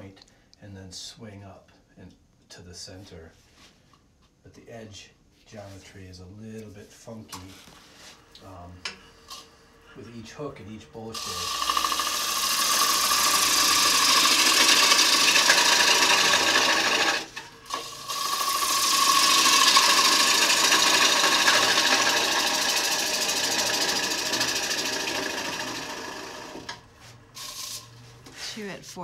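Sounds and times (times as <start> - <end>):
lathe tool cutting wood: 11.1 - 27.8.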